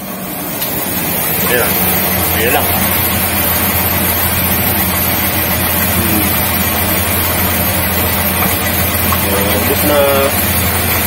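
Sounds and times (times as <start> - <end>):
motor hum: 0.0 - 11.0
rice rushing into mill: 0.5 - 11.0.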